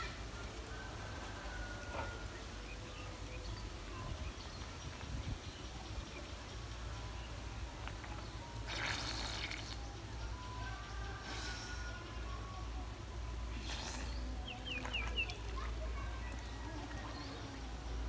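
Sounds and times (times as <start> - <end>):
splashing water streaming off net: 8.6 - 9.8.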